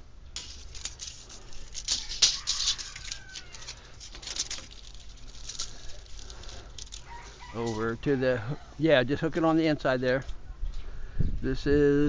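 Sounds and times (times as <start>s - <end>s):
handling rustling and clicking: 0.4s - 8.1s.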